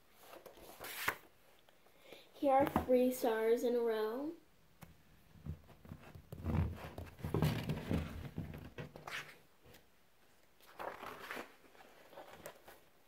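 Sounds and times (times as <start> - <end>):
pages rustling: 0.2 - 1.3, 10.6 - 13.0.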